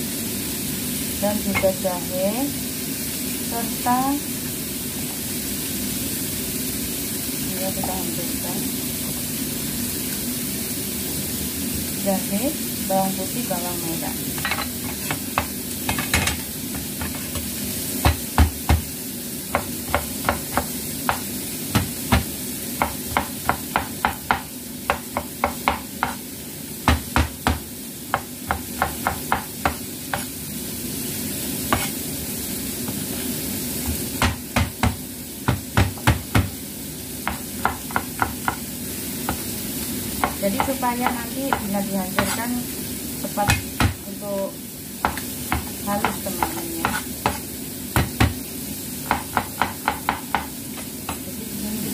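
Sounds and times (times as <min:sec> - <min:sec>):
fish sizzling in oil: 0:00.0 - 0:51.9
cleaver chopping on cutting board: 0:14.4 - 0:17.4, 0:18.0 - 0:18.9, 0:19.5 - 0:26.2, 0:26.9 - 0:30.3, 0:31.7 - 0:31.9, 0:33.8 - 0:36.5, 0:37.2 - 0:38.6, 0:40.2 - 0:42.4, 0:43.5 - 0:44.0, 0:45.0 - 0:47.4, 0:48.0 - 0:48.4, 0:49.0 - 0:51.2.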